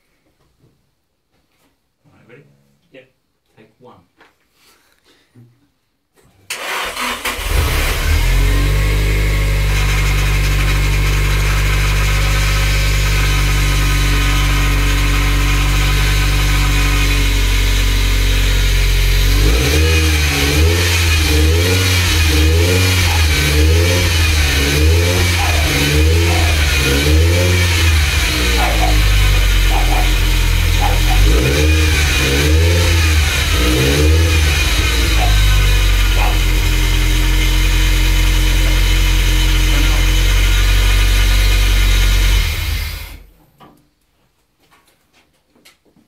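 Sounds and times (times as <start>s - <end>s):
car engine starting and idling: 6.5s - 43.3s.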